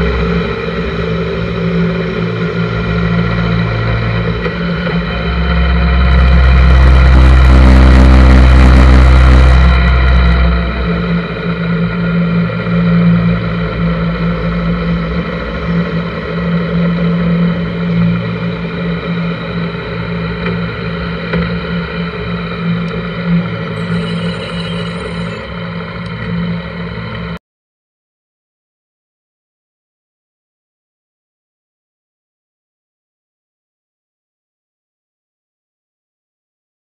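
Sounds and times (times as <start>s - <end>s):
motorcycle engine running: 0.0s - 27.4s
road and wind noise: 0.0s - 27.4s.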